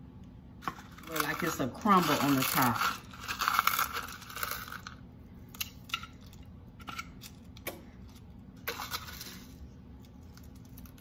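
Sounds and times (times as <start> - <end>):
cereal crinkling: 0.6 - 6.4, 8.6 - 11.0.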